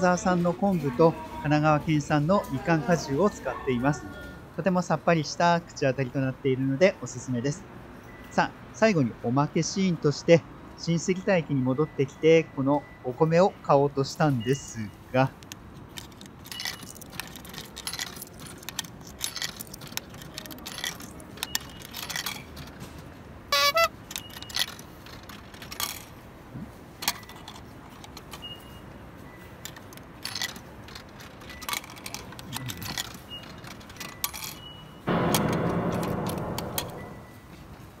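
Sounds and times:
coins clinking into coin slot: 14.5s - 26.2s, 27.0s - 37.4s
loud sustained noise: 35.1s - 37.5s.

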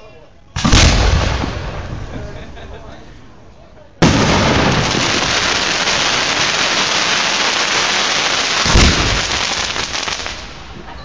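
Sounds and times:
firework bang: 0.6s - 2.8s, 4.0s - 7.8s, 8.4s - 10.9s
fireworks crackling: 0.6s - 11.0s.

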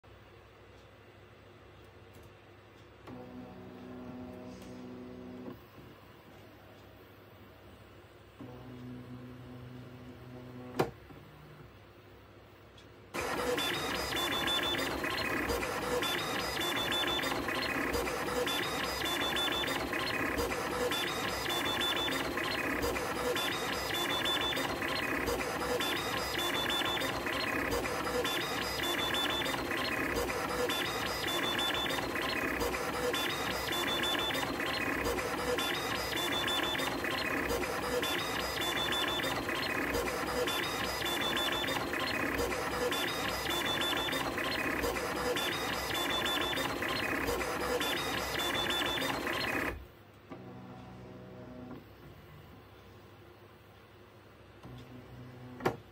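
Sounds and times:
three-d printer motors whining: 13.2s - 51.8s.

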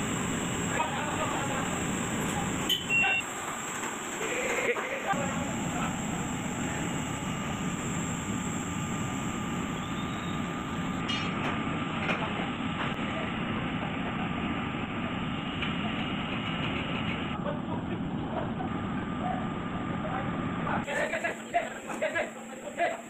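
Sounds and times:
high-pitched whine: 0.0s - 17.5s
mechanical rumble: 5.2s - 20.9s.

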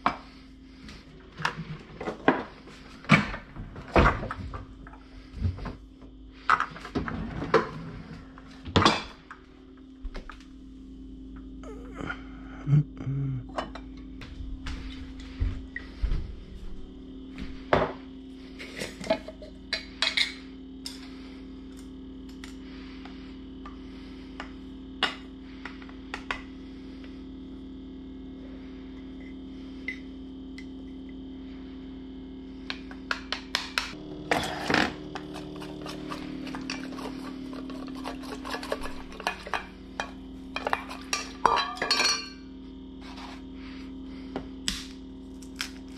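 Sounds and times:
low hum: 0.0s - 45.9s.

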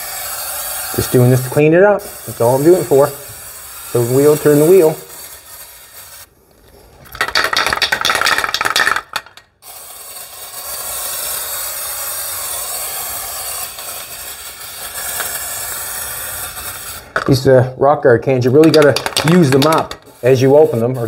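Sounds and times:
aerosol can spraying: 0.0s - 6.3s, 9.6s - 17.4s, 18.4s - 21.0s
aerosol spray hiss: 0.0s - 6.3s, 9.6s - 17.2s, 18.5s - 21.0s.

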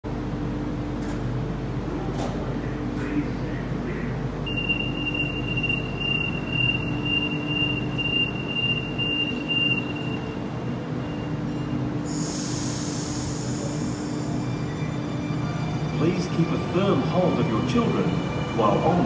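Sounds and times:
idling train hum: 0.0s - 19.0s
train door warning tone: 4.4s - 14.1s
loud hiss: 12.1s - 14.4s.

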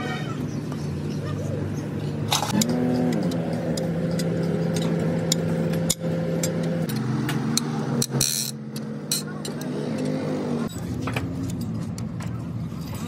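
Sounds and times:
engine running: 0.0s - 13.0s
sharp clicks and knocks: 2.3s - 12.4s.

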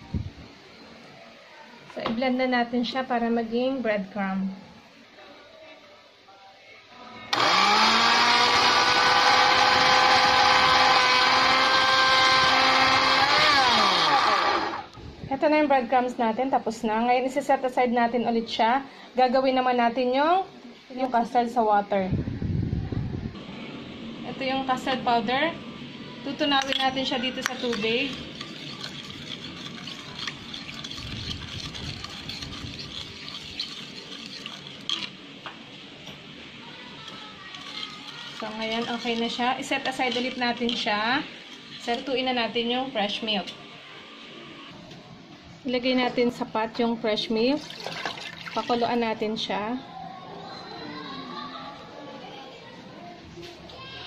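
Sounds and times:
electric blender motor: 7.3s - 15.0s, 27.4s - 35.1s
utensil stirring liquid in a bowl: 26.3s - 35.3s, 36.8s - 43.6s, 47.6s - 49.1s.

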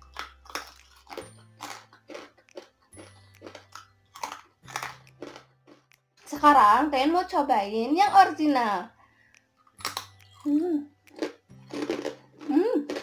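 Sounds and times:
crunching and chewing chips: 0.0s - 6.4s, 9.3s - 13.0s.

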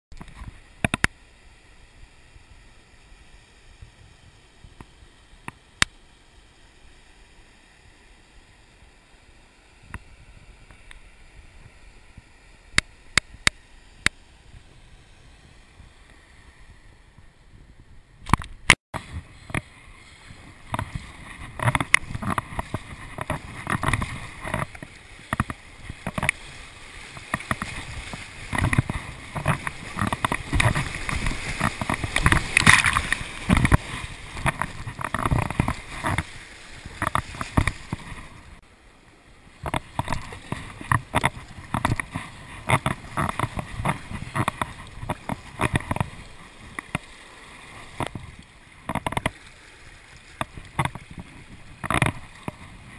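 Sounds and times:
water slapping hull: 18.2s - 38.7s, 39.5s - 52.9s
paddle strokes splashing: 19.0s - 38.8s, 39.4s - 52.9s
whitewater rushing: 19.0s - 38.8s.

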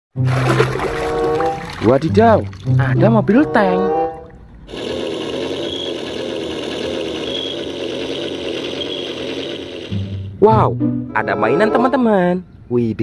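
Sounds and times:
model tank motor drone: 4.7s - 10.3s.

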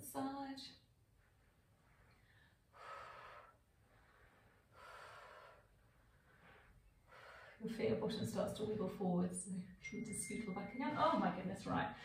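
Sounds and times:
woman breathing hard: 2.0s - 7.6s.

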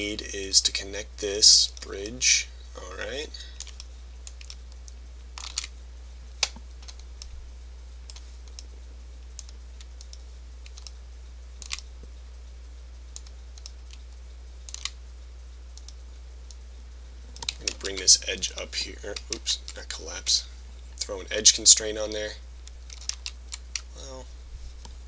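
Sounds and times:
low electrical hum: 0.0s - 25.0s
keyboard and mouse clicks: 11.6s - 11.8s, 14.7s - 15.0s, 17.4s - 18.5s.

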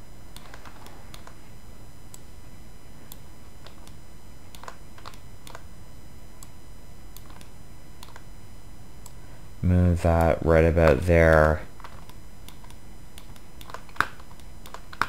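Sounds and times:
keyboard and mouse clicks: 0.3s - 1.4s, 3.1s - 5.7s, 7.2s - 8.3s, 11.8s - 15.0s.

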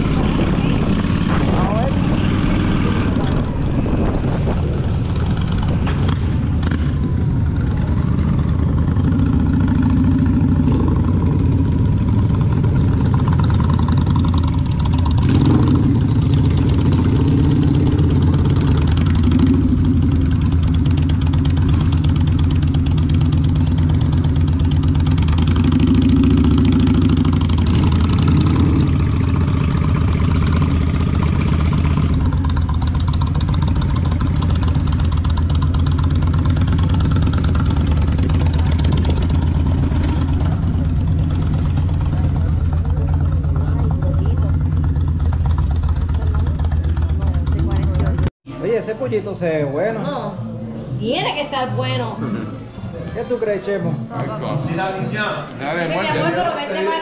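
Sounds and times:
motorcycle engine running: 0.0s - 48.4s.

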